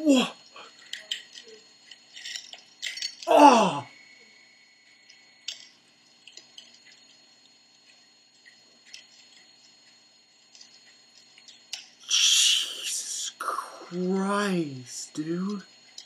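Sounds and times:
faint high-pitched whine: 0:00.0 - 0:16.0
person breathing with a hiss: 0:12.0 - 0:14.0.

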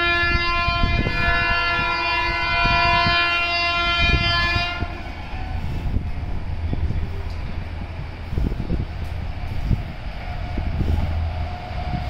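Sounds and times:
locomotive air horn blast: 0:00.0 - 0:06.1
train coaches rumbling: 0:00.0 - 0:12.0.

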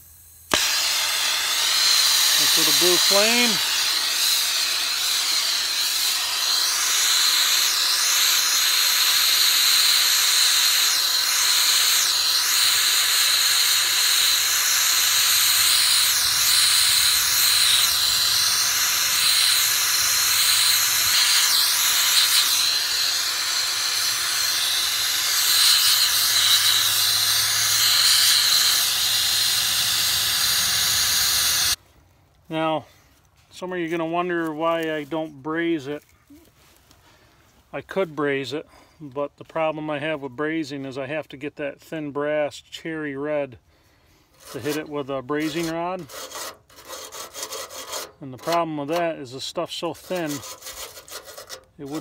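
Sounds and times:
torch flame hissing: 0:00.2 - 0:31.8.

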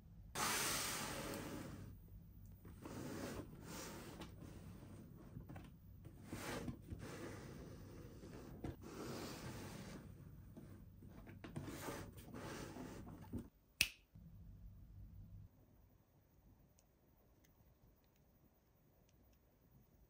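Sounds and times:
sharp snap: 0:13.8 - 0:14.1.

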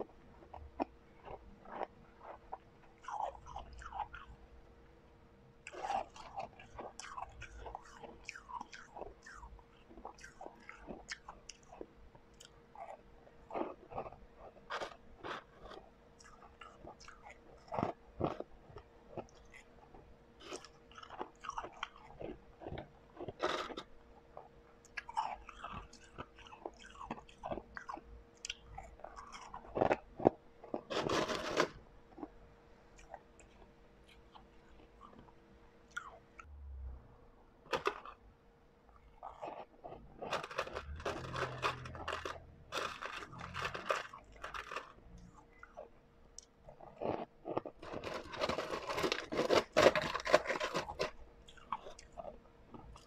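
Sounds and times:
ice crunching between teeth: 0:05.7 - 0:18.5, 0:20.4 - 0:23.9, 0:24.9 - 0:32.3, 0:37.7 - 0:38.2, 0:39.2 - 0:45.8, 0:46.7 - 0:53.0.

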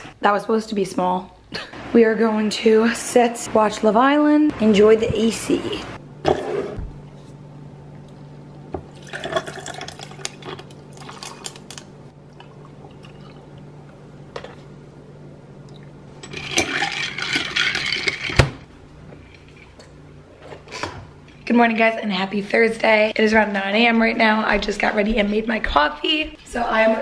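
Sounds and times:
low steady hum: 0:00.0 - 0:27.0
liquid poured over ice: 0:08.9 - 0:11.6
ice clinking: 0:08.9 - 0:13.5, 0:15.7 - 0:18.4
metal straw stirring: 0:16.2 - 0:18.4.

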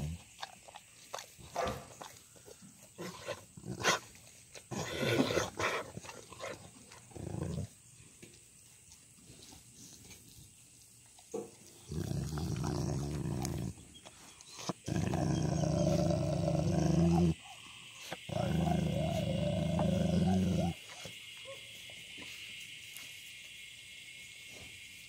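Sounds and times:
dog growling: 0:00.0 - 0:00.3, 0:04.7 - 0:07.8, 0:11.8 - 0:13.9, 0:14.5 - 0:17.6, 0:18.2 - 0:21.1.

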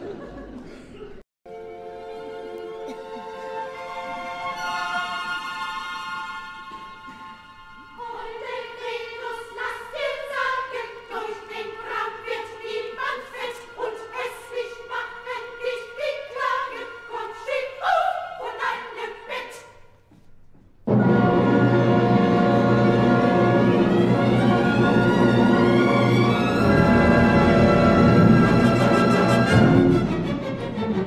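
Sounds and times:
orchestra: 0:01.5 - 0:09.7, 0:20.9 - 0:31.0
opera chorus singing: 0:03.6 - 0:19.8, 0:20.9 - 0:31.0.

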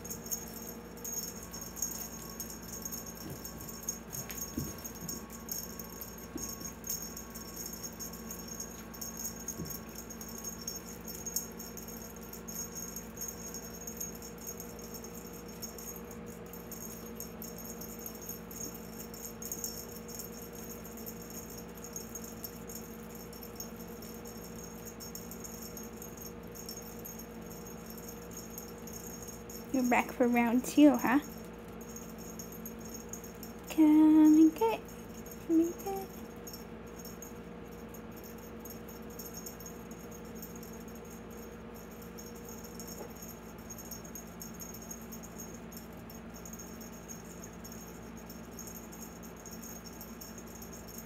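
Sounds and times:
cat toy rattling and crinkling: 0:00.0 - 0:33.7
low steady hum: 0:00.0 - 0:51.0.

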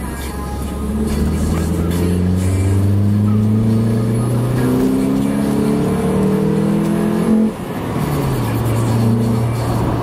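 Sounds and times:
car engine accelerating: 0:00.2 - 0:10.0.

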